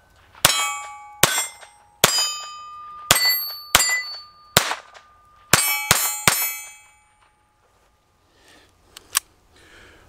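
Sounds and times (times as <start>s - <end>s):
steel target clanging: 0.3s - 7.5s
pistol shots: 0.4s - 6.8s.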